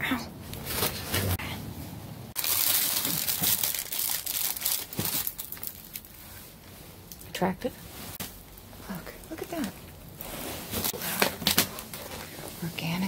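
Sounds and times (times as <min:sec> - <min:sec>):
plastic bags crinkling: 0:02.4 - 0:06.2.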